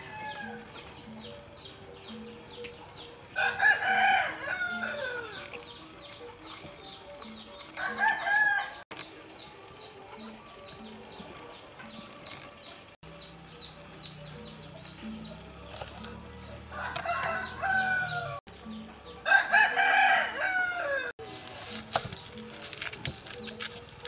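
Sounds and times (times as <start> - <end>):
rooster crowing: 3.4 - 5.4, 7.8 - 8.8, 16.7 - 18.4, 19.3 - 21.1.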